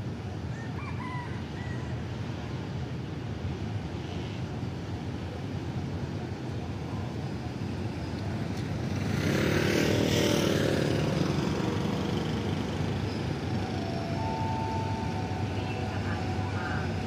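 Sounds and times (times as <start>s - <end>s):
locomotive engine rumble: 10.6s - 17.0s
train brakes squealing: 11.2s - 17.0s.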